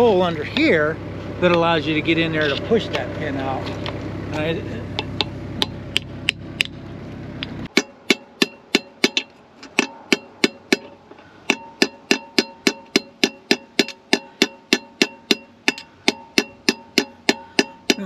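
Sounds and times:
hammer tapping steel: 0:07.7 - 0:18.0.

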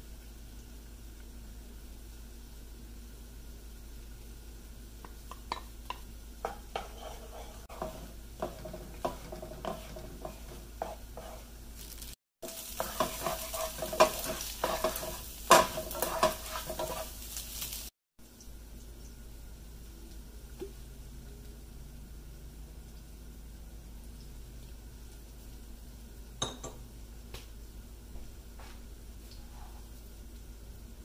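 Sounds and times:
eggs sizzling in oil: 0:00.0 - 0:31.0
spatula scraping pan: 0:06.4 - 0:11.6, 0:12.4 - 0:17.8.

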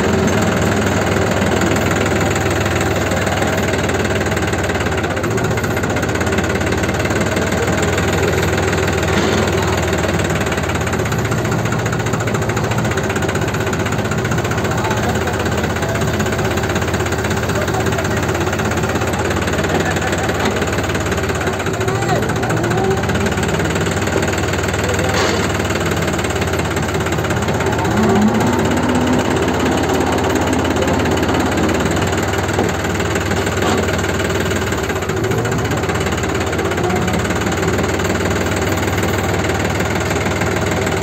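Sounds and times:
tractor diesel engine running: 0:00.0 - 0:41.0.

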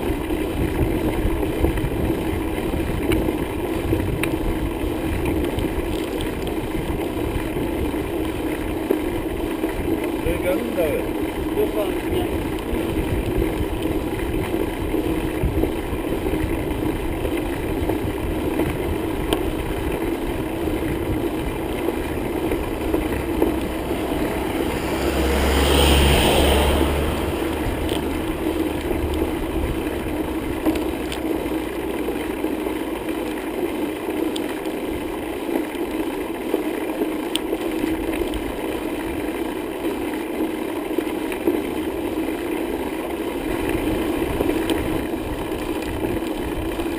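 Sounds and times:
bicycle tyre rumble: 0:00.0 - 0:46.9
wind rushing past microphone: 0:11.4 - 0:30.9.

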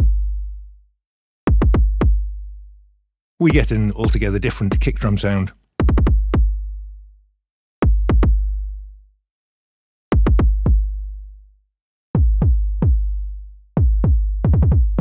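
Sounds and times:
synthesized kick drum booms: 0:00.0 - 0:00.4, 0:01.5 - 0:02.3, 0:03.4 - 0:05.1, 0:05.8 - 0:06.6, 0:07.8 - 0:08.5, 0:10.2 - 0:11.0, 0:12.2 - 0:13.2, 0:13.8 - 0:15.0.

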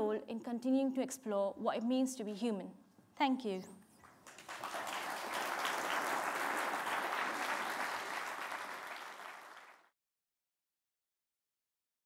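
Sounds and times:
audience applauding: 0:04.0 - 0:09.9.

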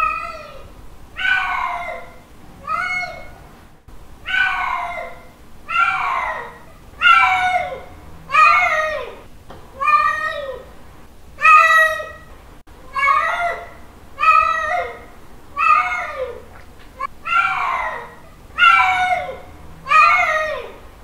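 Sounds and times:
cat meowing: 0:05.7 - 0:09.2.

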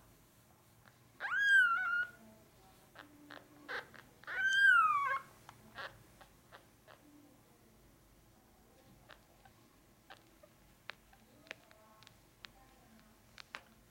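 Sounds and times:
faint clicks: 0:10.1 - 0:13.9.

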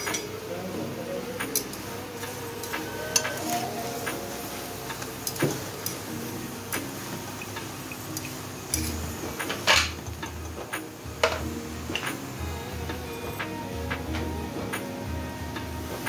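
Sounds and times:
metal tongs clicking and scraping: 0:00.0 - 0:00.3, 0:01.4 - 0:12.2
bread sizzling on griddle: 0:00.0 - 0:16.0.

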